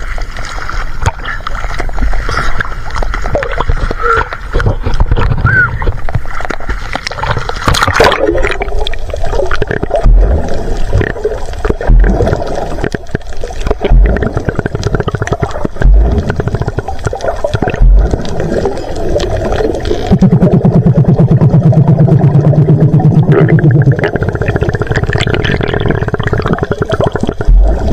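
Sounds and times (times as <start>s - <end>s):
underwater water and bubbles: 0.0s - 27.9s
water splashing: 0.0s - 27.9s
crackle of fine clicks: 0.1s - 13.9s, 14.7s - 20.1s
low thumps: 9.9s - 10.5s, 11.8s - 12.3s, 13.8s - 14.3s, 15.7s - 16.4s, 17.6s - 18.4s, 27.5s - 27.9s.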